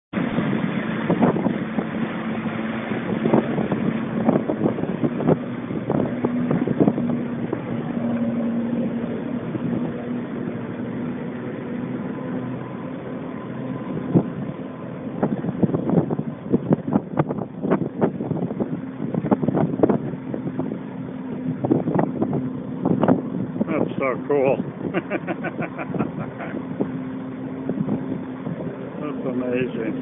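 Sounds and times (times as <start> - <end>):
wind knocking on microphone: 0.2 - 2.0, 3.0 - 8.4, 14.0 - 14.5, 15.2 - 20.8, 21.4 - 24.0, 27.6 - 28.7
jetpack engine droning: 0.2 - 30.0.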